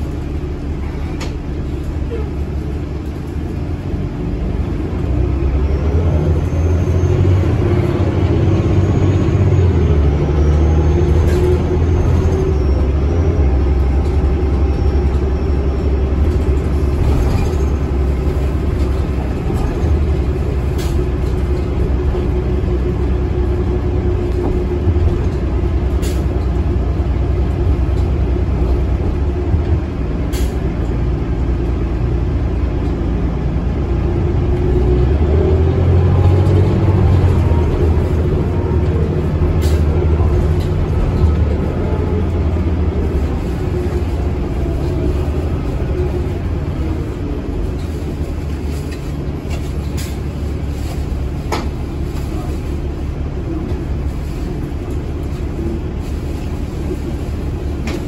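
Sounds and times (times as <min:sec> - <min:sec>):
bus engine and road rumble: 0:00.0 - 0:58.0.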